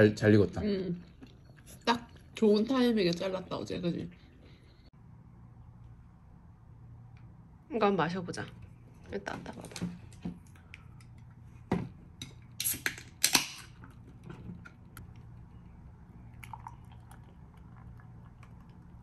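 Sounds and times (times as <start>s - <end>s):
can opening hiss: 12.6s - 13.2s.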